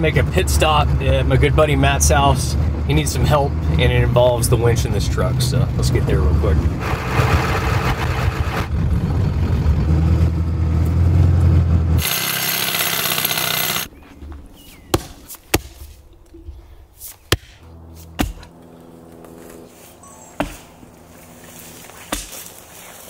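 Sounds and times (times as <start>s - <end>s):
diesel truck engine running: 0.0s - 13.9s
tyres on gravel road: 0.0s - 23.0s
axe chopping tree stump: 14.9s - 16.0s, 17.0s - 18.6s, 20.4s - 20.8s, 22.0s - 22.6s.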